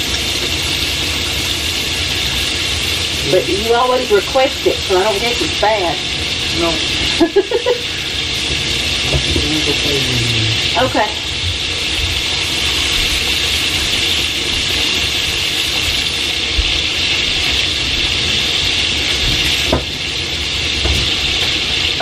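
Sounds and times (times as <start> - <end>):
sausage sizzling in skillet: 0.0 - 22.0
low rumble: 8.4 - 11.8.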